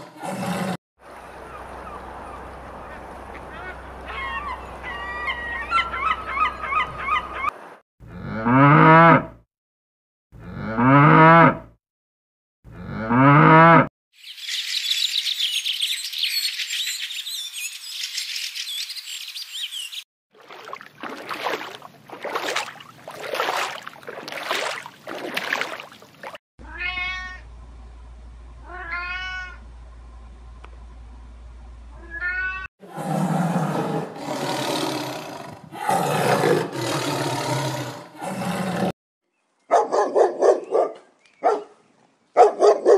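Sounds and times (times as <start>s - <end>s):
cow mooing: 8.1s - 9.4s, 10.4s - 11.7s, 12.7s - 13.9s
kitten meowing: 26.6s - 27.4s, 28.7s - 29.6s.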